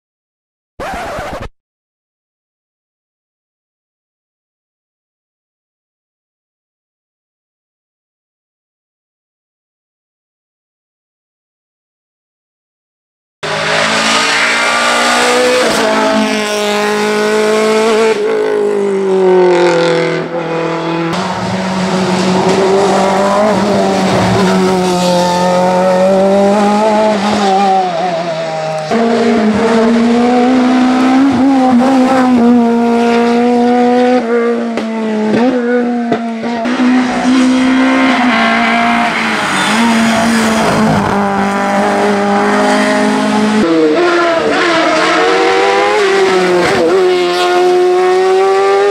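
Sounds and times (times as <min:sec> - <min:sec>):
racing car engines revving: 0:13.4 - 0:48.9.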